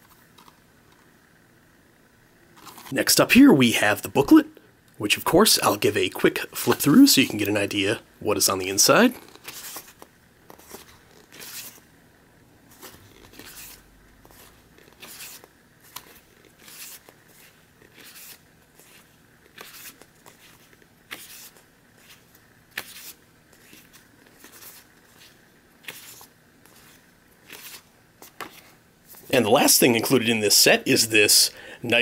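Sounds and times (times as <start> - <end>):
paper pages turning: 2.6 - 3.0, 9.1 - 11.9, 12.7 - 29.3.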